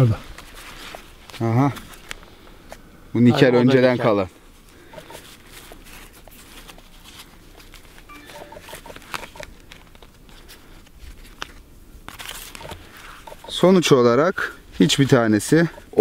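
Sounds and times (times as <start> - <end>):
fabric rustling and crinkling: 5.2 - 8.1.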